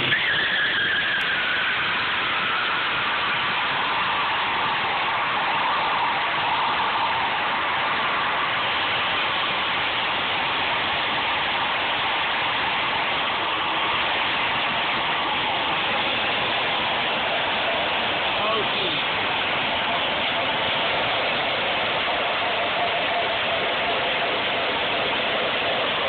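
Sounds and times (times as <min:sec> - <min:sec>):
tyre spinning on pavement: 0:00.0 - 0:06.2.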